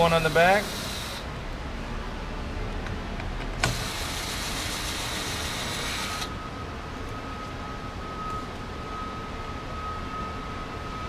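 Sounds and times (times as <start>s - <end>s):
power driver whining: 0.0s - 1.5s, 3.4s - 6.4s.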